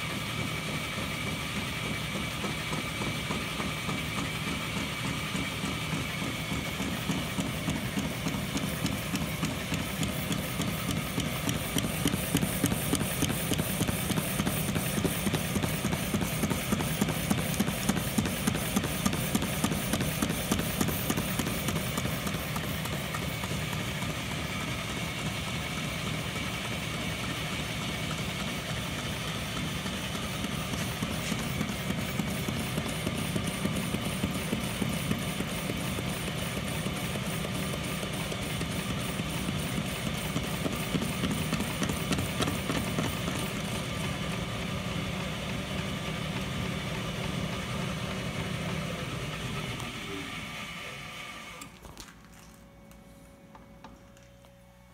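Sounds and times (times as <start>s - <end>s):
metal lathe running: 0.0s - 51.7s.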